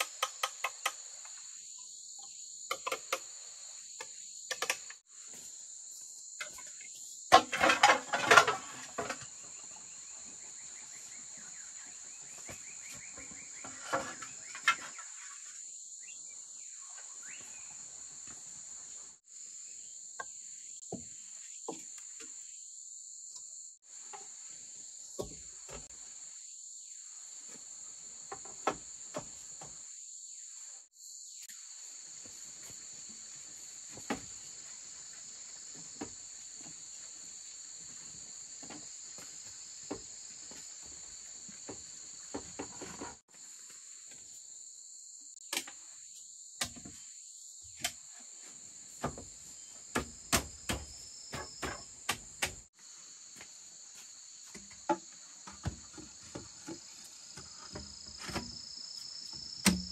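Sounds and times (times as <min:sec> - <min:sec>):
insects chorus: 0:00.0 - 0:59.9
sharp knocks and taps: 0:49.9 - 0:52.7.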